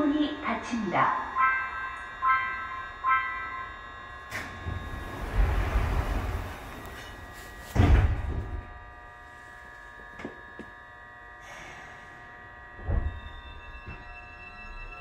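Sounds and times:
train electrical hum: 0.0s - 15.0s
heavy thunk: 7.7s - 8.7s.

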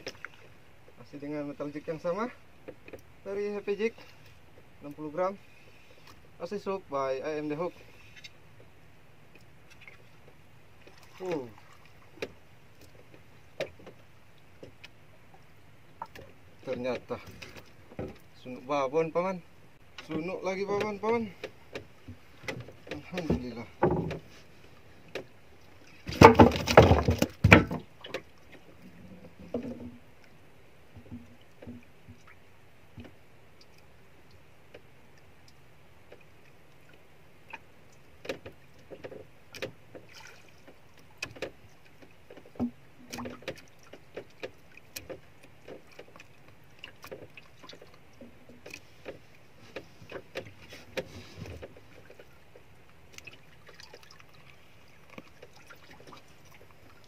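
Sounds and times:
fish knocking and rustling in boat: 15.9s - 18.4s, 20.0s - 30.1s, 30.9s - 33.2s, 37.5s - 57.0s.

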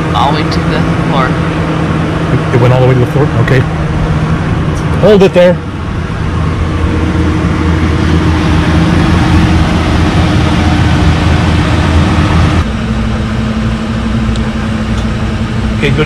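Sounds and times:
engine drone: 0.0s - 16.0s.

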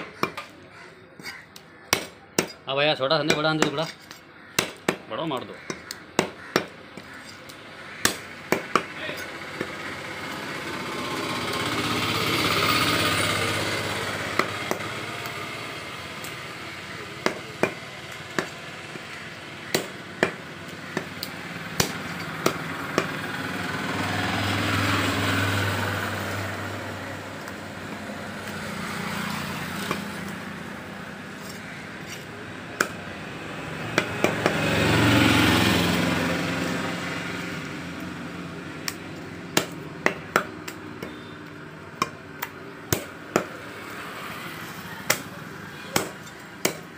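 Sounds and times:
cleaver chopping meat on wood: 0.0s - 0.6s, 1.2s - 2.6s, 3.2s - 5.1s, 5.7s - 9.8s, 14.1s - 15.4s, 16.2s - 23.2s, 29.8s - 30.2s, 31.5s - 33.1s, 33.9s - 34.8s, 38.8s - 43.7s, 45.0s - 45.3s, 45.9s - 46.9s.

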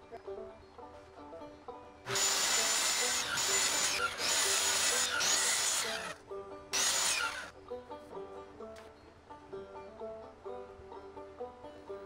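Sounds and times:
power tool whining into wood: 2.1s - 6.2s, 6.8s - 7.5s.

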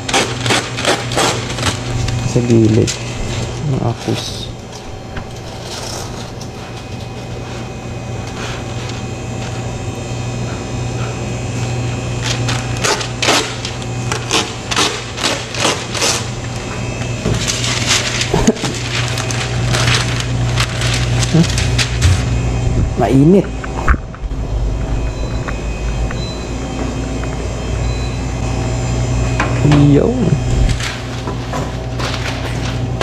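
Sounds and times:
parchment paper tearing and crackling: 0.0s - 3.1s, 5.3s - 9.7s, 12.1s - 22.3s, 30.7s - 33.0s
steady low hum: 0.0s - 33.0s.

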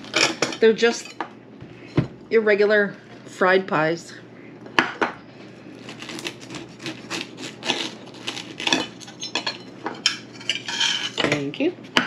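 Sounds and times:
knife sawing through crisp crust: 5.7s - 9.0s.

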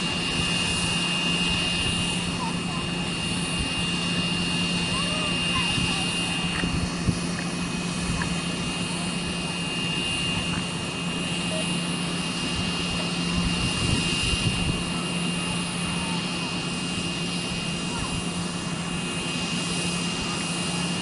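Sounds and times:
high-pitched engine whine: 0.0s - 21.0s
turboprop plane drone: 0.0s - 21.0s
wind rumble on microphone: 3.4s - 8.8s, 12.6s - 15.0s.

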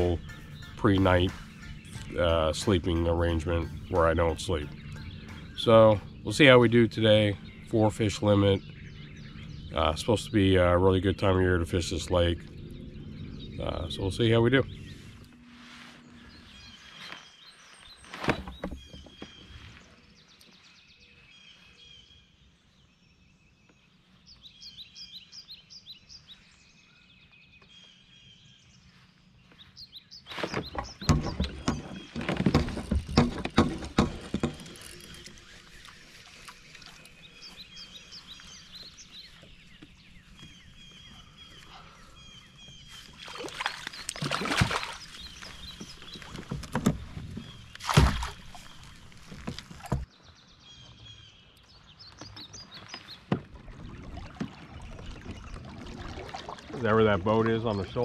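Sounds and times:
birds singing: 0.0s - 58.0s
fish splashing and thrashing: 30.4s - 37.5s, 41.6s - 50.1s, 52.2s - 57.7s.

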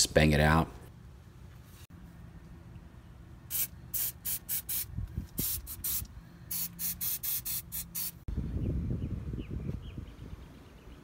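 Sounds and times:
aerosol can spraying bursts: 3.5s - 8.2s.

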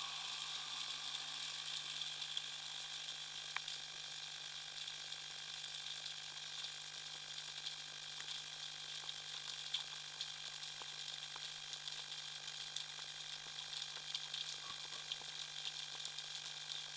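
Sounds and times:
underwater snapping shrimp crackling: 3.4s - 3.8s, 12.8s - 16.9s.

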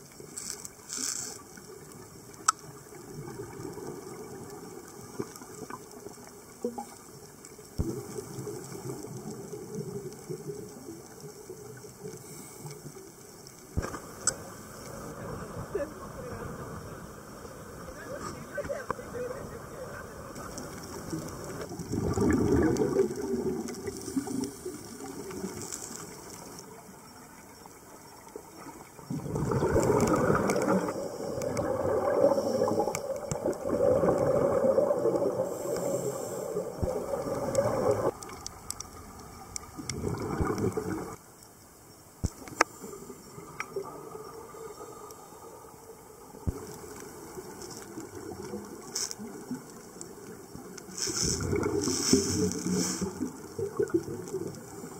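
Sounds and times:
underwater regulator bubbles: 7.8s - 12.8s, 13.7s - 27.4s, 28.0s - 41.2s, 46.3s - 54.9s.

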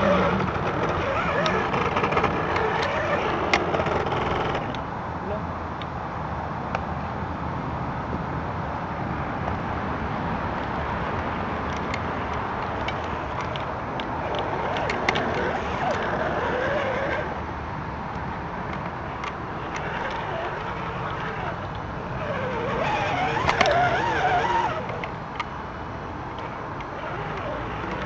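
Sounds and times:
toy car electric motor whirring: 0.0s - 4.8s, 12.8s - 17.4s, 19.2s - 25.1s, 26.4s - 28.0s.

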